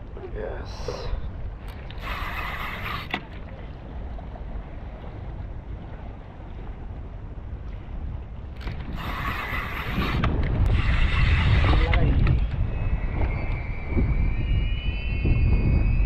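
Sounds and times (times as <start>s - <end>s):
wind buffeting microphone: 0.0s - 16.0s
sea water washing against rocks: 8.6s - 13.3s.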